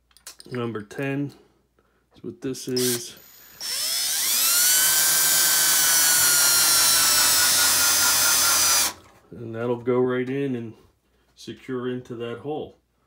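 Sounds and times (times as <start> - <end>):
cordless drill motor whine: 2.8 - 9.0.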